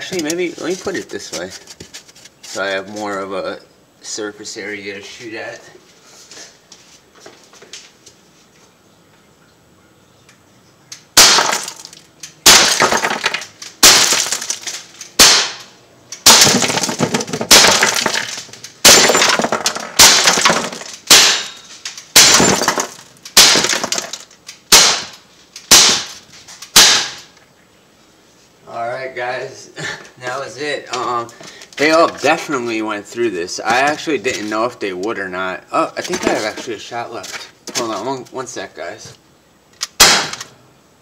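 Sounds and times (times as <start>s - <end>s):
air pistol shots popping: 11.2s - 11.8s, 15.1s - 16.7s, 21.1s - 21.6s, 22.2s - 23.9s, 24.7s - 27.3s, 39.8s - 40.5s
ceramic jar shattering: 11.2s - 14.8s, 16.3s - 24.2s
pellets striking foam blocks: 11.2s - 27.3s, 40.0s - 40.4s.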